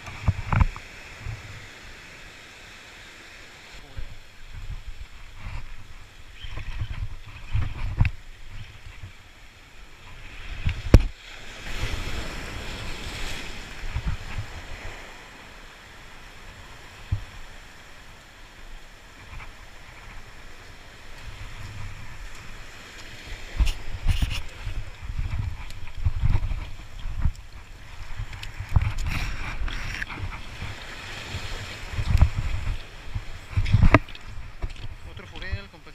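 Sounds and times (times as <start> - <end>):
wind bumps on microphone: 0.0 - 1.6, 3.9 - 9.2, 10.0 - 15.1, 21.2 - 35.8
sea waves against rocks: 0.0 - 35.9.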